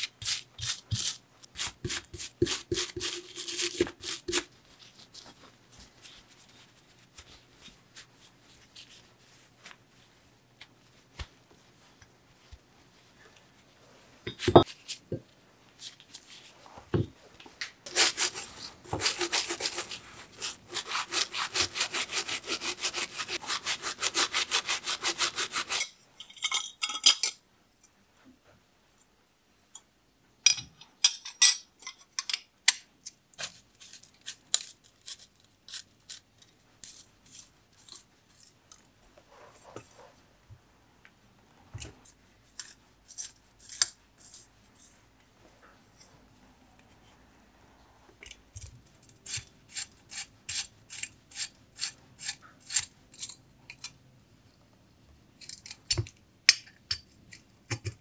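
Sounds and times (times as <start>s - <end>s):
light clicks and taps of tools: 48.2s - 49.2s, 55.4s - 58.0s.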